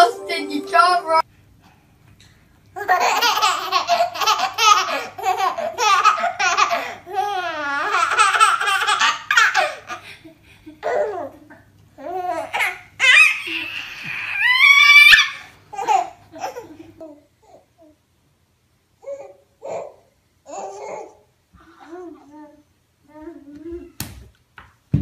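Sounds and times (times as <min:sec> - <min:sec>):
baby laughing: 0:02.8 - 0:10.1, 0:15.3 - 0:17.2
baby squealing: 0:13.0 - 0:15.5.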